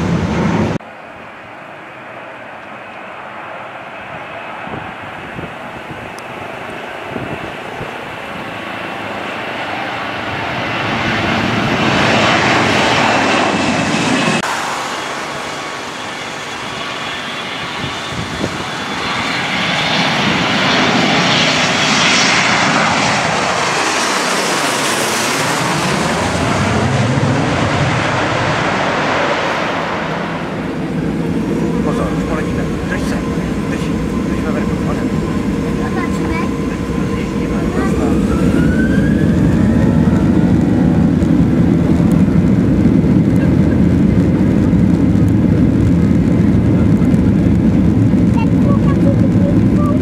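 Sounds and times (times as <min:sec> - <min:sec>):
jet engines taking off: 0:00.0 - 0:50.0
jet landing: 0:00.0 - 0:50.0
low steady engine rumble: 0:30.2 - 0:50.0.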